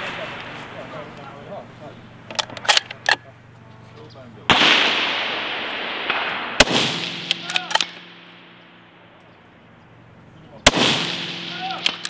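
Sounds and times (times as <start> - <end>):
rifle bolt clicks: 2.3 - 3.2, 7.3 - 8.1, 11.8 - 12.0
rifle shots with echo: 4.5 - 10.0, 10.6 - 12.0.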